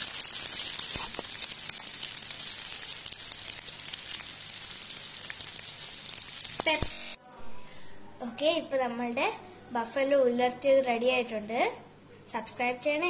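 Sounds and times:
food sizzling in a pan: 0.0s - 7.2s.

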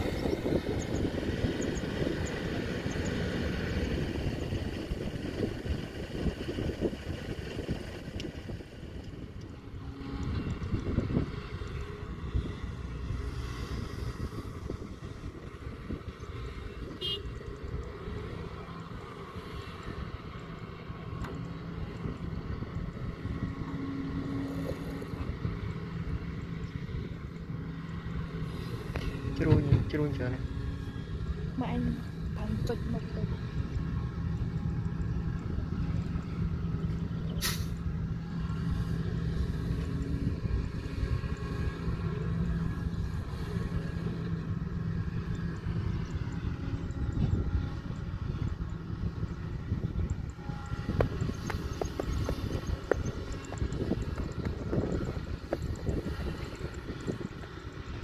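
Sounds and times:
excavator diesel engine rumbling: 0.0s - 58.0s
short sharp hiss: 37.4s - 37.8s.

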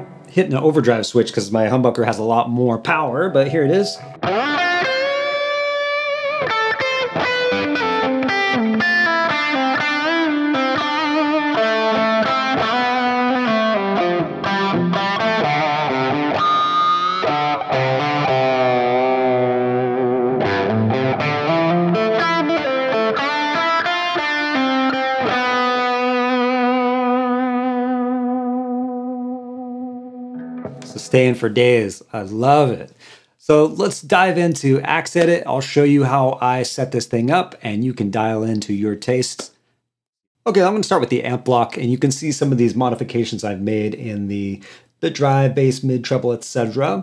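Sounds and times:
overdriven electric guitar lead: 3.3s - 31.1s.

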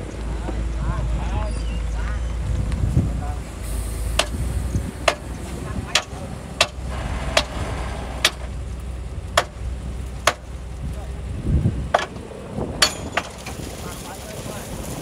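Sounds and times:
diesel engine rumbling: 0.0s - 15.0s.

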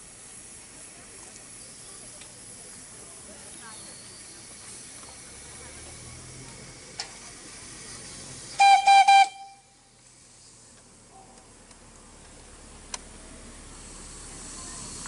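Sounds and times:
steam hissing: 0.0s - 10.6s, 13.3s - 15.0s
steam locomotive whistle toots: 8.6s - 9.8s.

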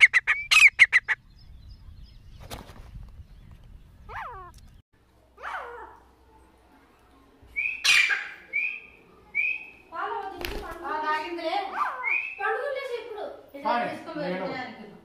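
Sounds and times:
francolins calling: 0.0s - 2.2s.

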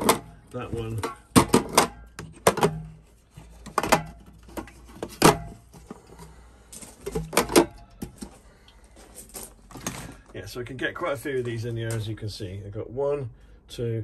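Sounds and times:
metal gas canisters knocking: 0.0s - 6.4s, 7.0s - 8.4s.

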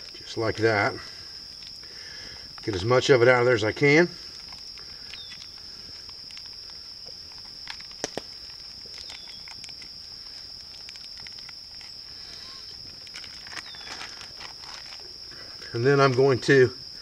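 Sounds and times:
high-pitched insect chorus: 0.0s - 17.0s
plastic bag crinkling: 4.3s - 15.3s.

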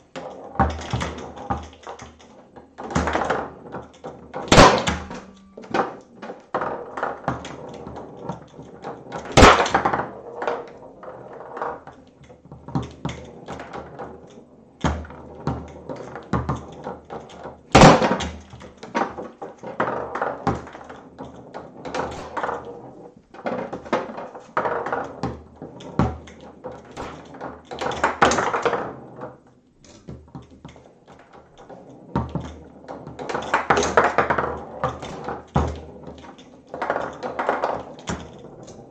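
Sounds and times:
foosball ball knocks and clacks: 0.0s - 38.9s
foosball rods sliding and bumping: 0.0s - 38.9s.

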